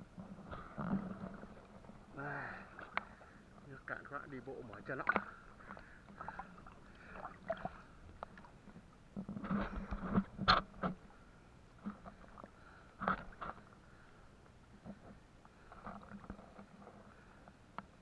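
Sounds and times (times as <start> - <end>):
water splashing from wading: 0.4 - 11.1.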